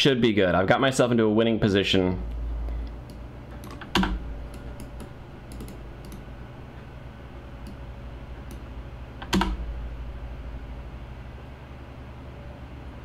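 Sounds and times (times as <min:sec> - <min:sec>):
steady low hum: 0:00.0 - 0:13.0
mouse and keyboard clicks: 0:03.0 - 0:06.2.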